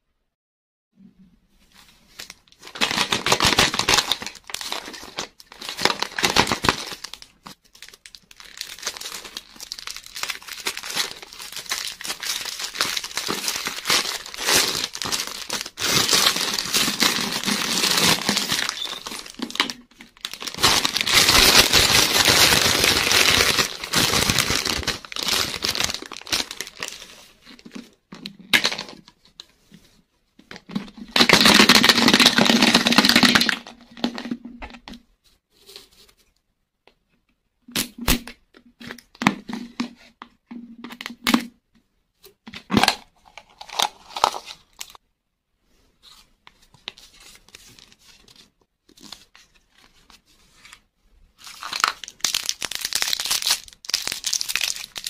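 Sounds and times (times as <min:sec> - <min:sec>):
candy wrapper crinkling and tearing: 0:02.2 - 0:27.3, 0:31.1 - 0:34.3, 0:42.8 - 0:45.0, 0:51.4 - 0:55.0.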